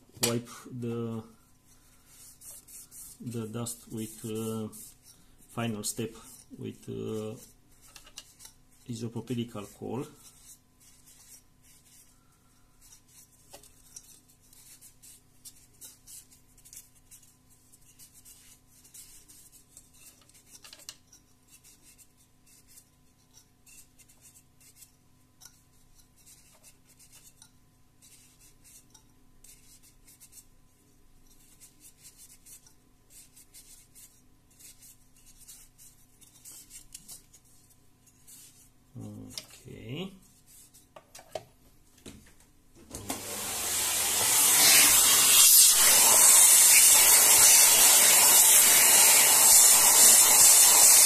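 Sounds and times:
cotton pad scrubbing plastic fan: 42.9s - 51.0s.

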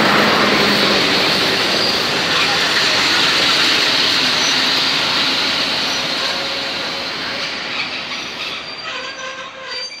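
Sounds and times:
train wheels rushing on rails: 0.0s - 10.0s
wheels squealing: 7.4s - 10.0s.

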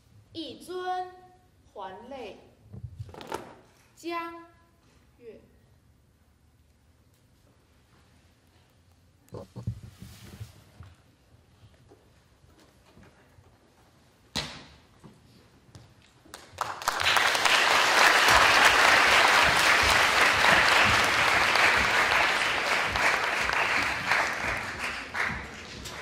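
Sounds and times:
audience applause: 16.4s - 26.0s.

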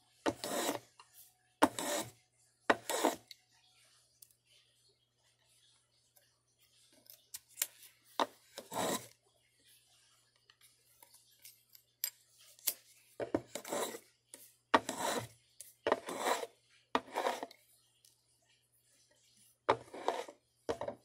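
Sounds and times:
hand tool scraping wood: 0.3s - 0.8s, 1.6s - 2.1s, 8.6s - 9.1s, 13.5s - 14.0s, 14.8s - 15.3s, 15.9s - 17.5s, 19.7s - 20.4s.

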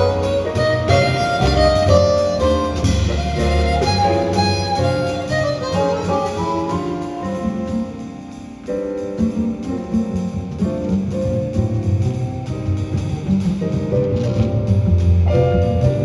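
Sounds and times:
chromatic harmonica melody: 0.0s - 7.7s
drum kit: 0.0s - 16.0s
grand piano: 0.0s - 16.0s
plucked double bass: 0.0s - 16.0s.

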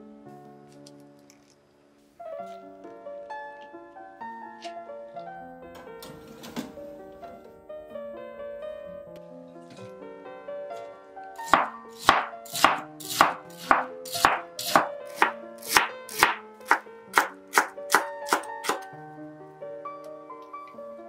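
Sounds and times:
background music: 0.0s - 21.0s
knife chopping on wooden board: 11.4s - 18.9s.

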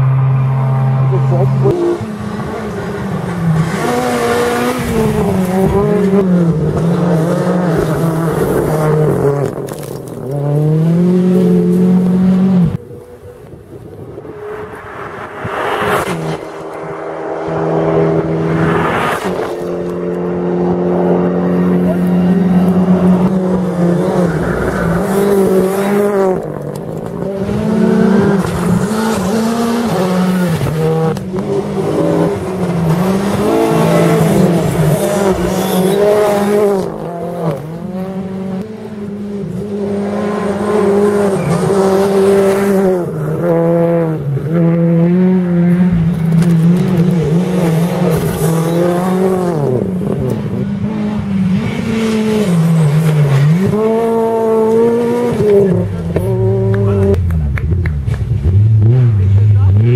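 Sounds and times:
rally car engines revving: 0.0s - 59.9s
car rushing past: 13.7s - 59.9s.

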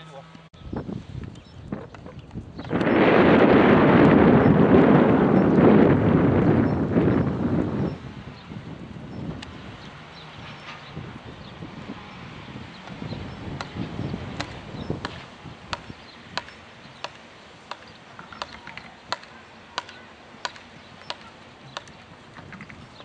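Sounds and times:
hooves thudding: 12.7s - 23.0s.

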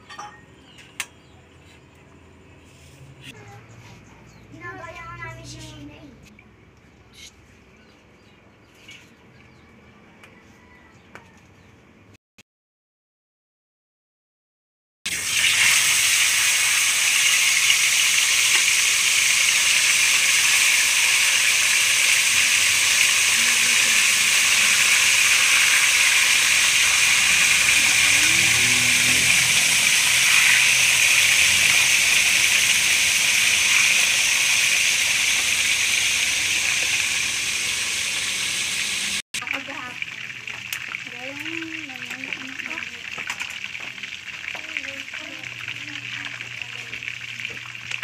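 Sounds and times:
fish sizzling in hot oil: 15.1s - 48.0s.

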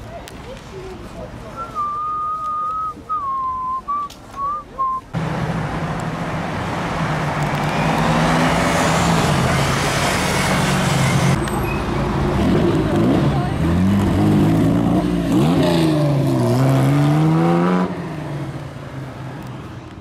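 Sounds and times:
tyre and road noise: 0.0s - 20.0s
person whistling: 1.6s - 5.1s
car driving past: 5.2s - 18.8s.

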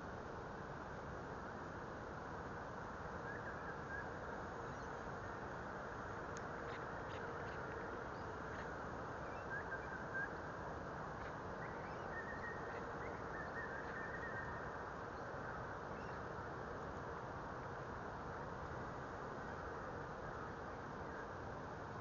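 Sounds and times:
steady hiss: 0.0s - 22.0s
birds chirping: 11.2s - 15.3s.

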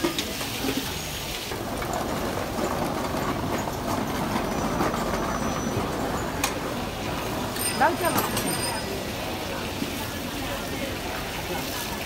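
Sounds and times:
hot oil sizzling: 0.0s - 1.8s, 8.7s - 12.0s
busy street noise: 0.0s - 12.0s.

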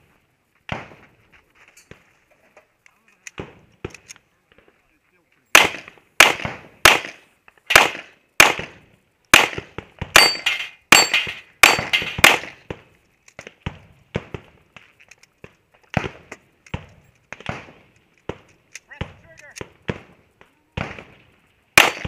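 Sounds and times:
pistol shots: 5.5s - 12.6s, 21.8s - 22.0s.

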